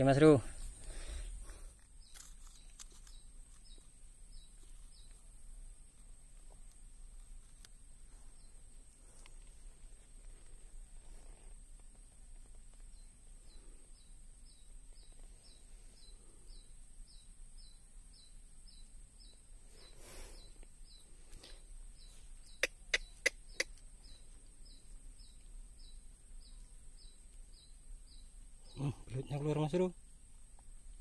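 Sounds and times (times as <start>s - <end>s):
soft rustle: 0.3s - 13.9s, 14.7s - 16.5s.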